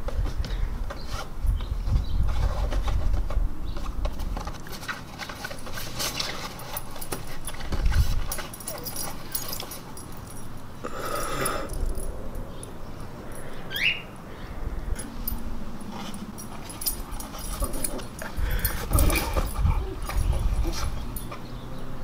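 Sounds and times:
dogs scuffling on bed: 0.0 - 10.3.

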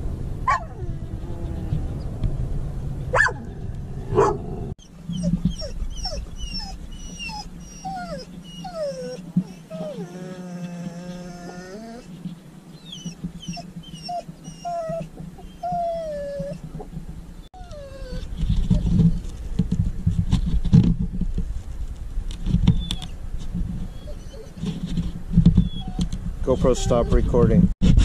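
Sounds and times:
dog whimpering: 0.5 - 1.8, 4.8 - 12.1, 12.8 - 16.6, 17.6 - 18.8, 23.9 - 24.6, 25.6 - 27.4.

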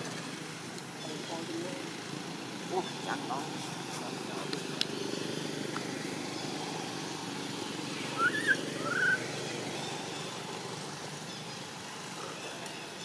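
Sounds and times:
baby monkey squeaky calls: 8.2 - 9.2.

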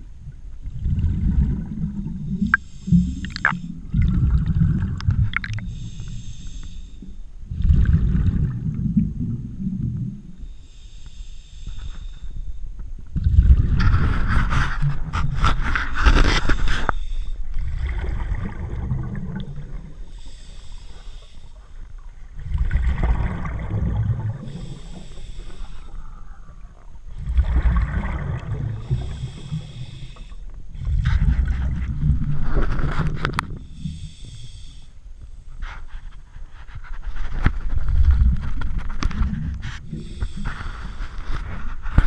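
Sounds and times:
exhaled bubbles rumbling: 0.0 - 6.0, 7.4 - 10.4, 13.1 - 16.8, 17.4 - 20.1, 22.0 - 33.8, 37.6 - 42.0
hissing regulator inhale: 2.4 - 3.9, 5.6 - 7.3, 10.4 - 12.6, 16.2 - 17.5, 20.0 - 21.8, 24.4 - 26.6, 28.7 - 31.1, 33.6 - 35.8, 39.6 - 41.5.

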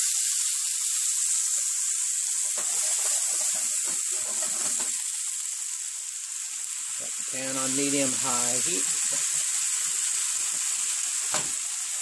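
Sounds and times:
chicken sizzling in frying pan: 0.0 - 12.0
knocks and scrapes in pan: 2.5 - 5.0.

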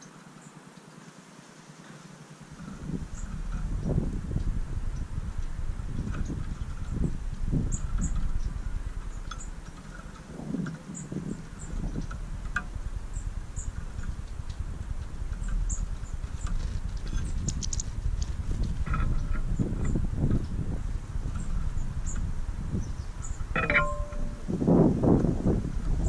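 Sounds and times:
beaks tapping on mesh feeder: 17.4 - 17.8.

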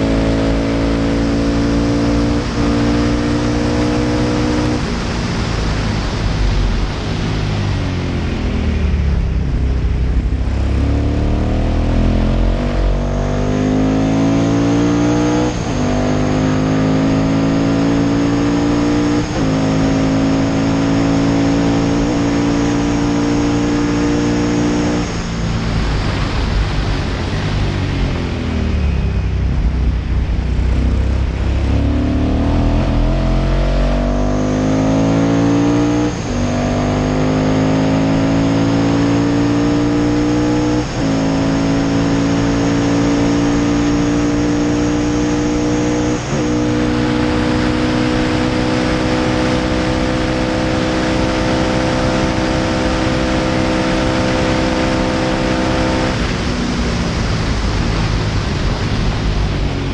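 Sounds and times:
racing engine at full throttle: 0.0 - 59.9
wind rush: 4.4 - 13.0, 24.7 - 36.5, 53.5 - 59.9.

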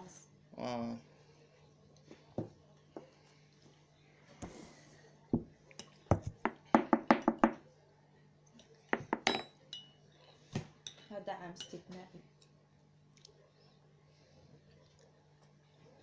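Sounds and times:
spoon stirring in ceramic mug: 9.3 - 11.8.

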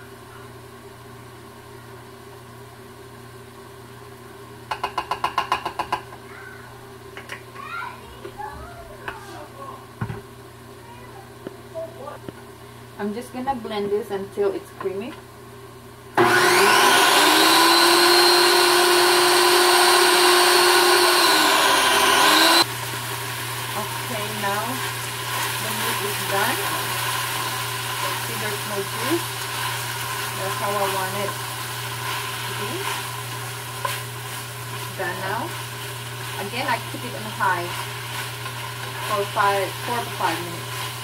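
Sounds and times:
background hiss and hum: 0.0 - 16.2, 22.6 - 41.0
cup tapping against a bowl: 4.7 - 6.1
food processor motor running: 16.2 - 34.0, 34.6 - 41.0.

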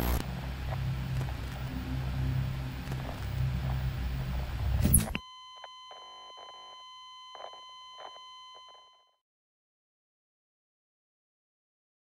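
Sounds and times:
low hum: 0.0 - 5.2
video static hiss: 0.0 - 5.2
high electronic beep tone: 4.8 - 9.1.

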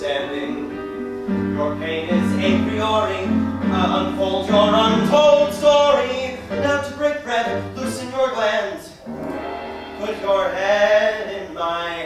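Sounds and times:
instrumental accompaniment with bass: 9.0 - 11.2.

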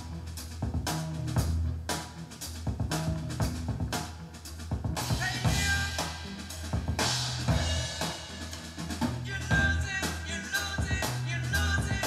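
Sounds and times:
bass line: 0.0 - 12.0
drum kit: 0.0 - 12.0
rock music: 0.0 - 12.0.

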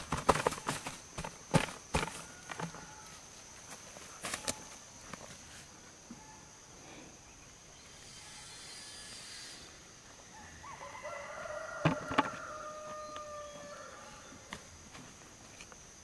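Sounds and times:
rooster crowing: 10.3 - 14.5.

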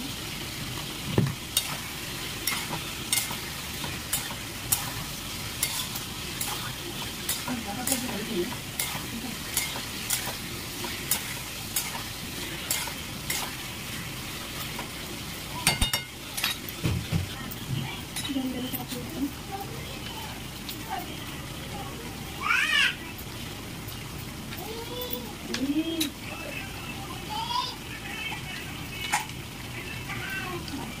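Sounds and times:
food sizzling in pan: 0.0 - 31.0
spatula scraping pan: 1.6 - 13.7.

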